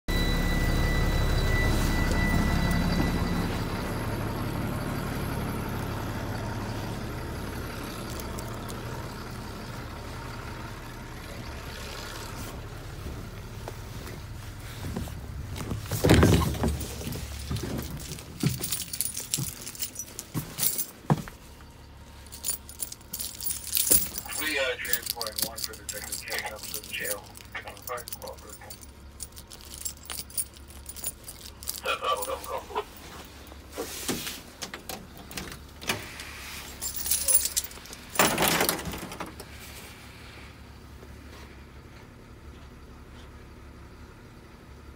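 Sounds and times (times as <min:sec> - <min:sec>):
keys jangling: 0:08.0 - 0:08.8, 0:15.8 - 0:21.3, 0:22.2 - 0:33.3, 0:36.6 - 0:39.2.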